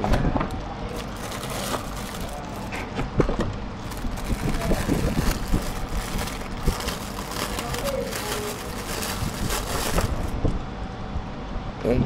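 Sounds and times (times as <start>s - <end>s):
plastic packaging crinkling: 0.9s - 2.9s, 3.8s - 10.4s.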